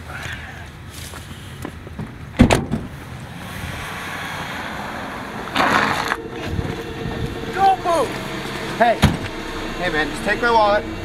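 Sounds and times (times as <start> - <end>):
car door slamming: 2.4 - 2.9
car engine driving up: 2.9 - 11.0
car pulling in rush of noise: 2.9 - 11.0.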